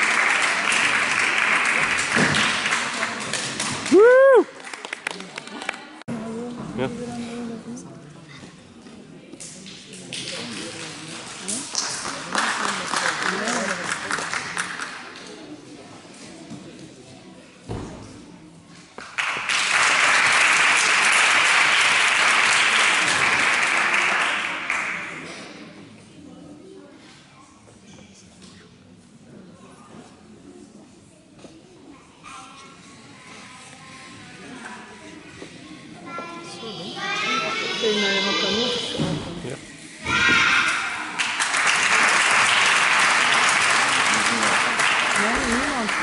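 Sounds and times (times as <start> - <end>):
spectators applauding: 0.0 - 5.8, 10.2 - 15.0, 19.2 - 25.1, 41.2 - 46.0.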